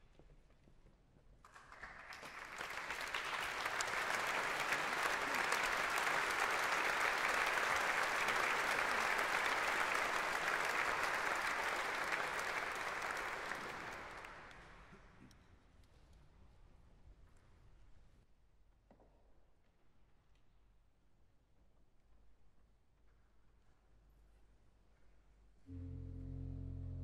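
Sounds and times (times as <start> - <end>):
audience applauding: 1.5 - 14.9.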